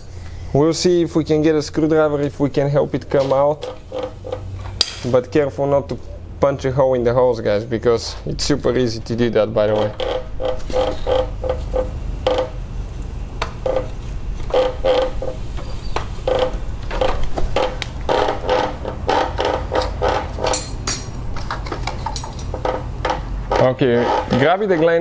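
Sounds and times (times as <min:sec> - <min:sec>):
steady low hum: 0:00.0 - 0:25.0
rubber hose squeaking: 0:03.3 - 0:04.7, 0:09.6 - 0:12.6, 0:13.6 - 0:20.6.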